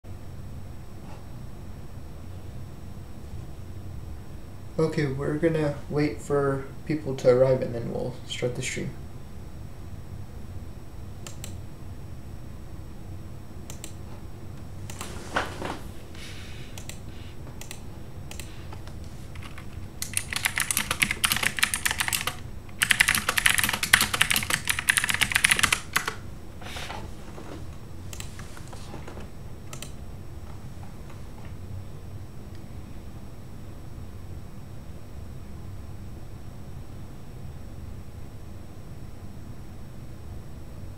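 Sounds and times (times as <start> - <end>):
typing on computer keyboard: 19.4 - 26.2.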